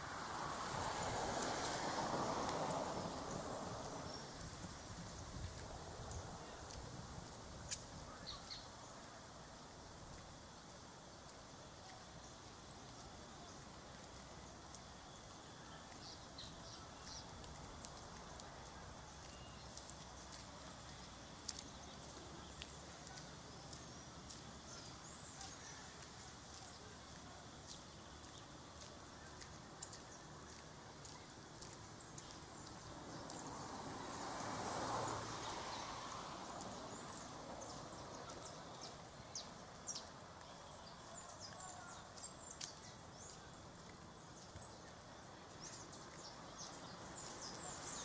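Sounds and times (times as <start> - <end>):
steady low hiss: 0.0 - 48.0.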